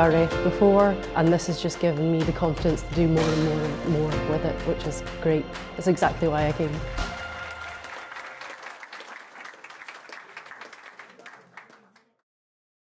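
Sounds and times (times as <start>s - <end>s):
audience applauding: 6.5s - 12.2s.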